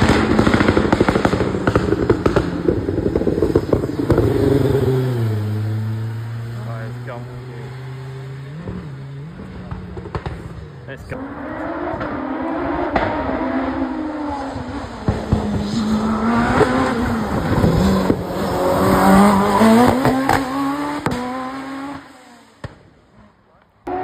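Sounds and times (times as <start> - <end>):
race car engine revving: 0.0 - 24.0
engine pops: 9.7 - 10.6.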